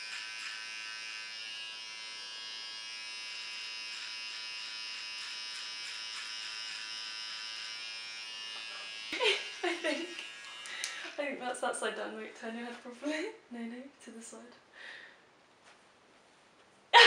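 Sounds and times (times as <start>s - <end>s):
electric hair trimmer buzzing: 0.0s - 11.2s.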